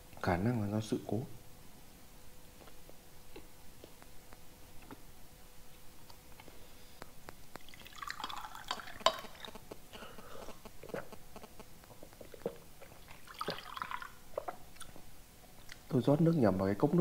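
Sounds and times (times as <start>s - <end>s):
water pouring into glass: 7.6s - 9.5s, 13.2s - 14.2s.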